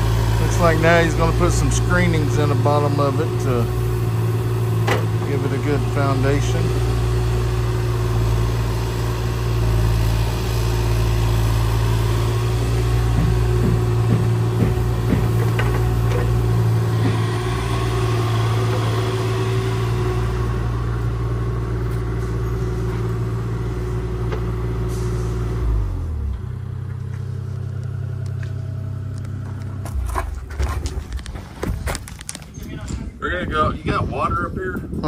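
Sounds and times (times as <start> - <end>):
heavy diesel engine running: 0.0 - 32.4
knocks: 13.0 - 17.4.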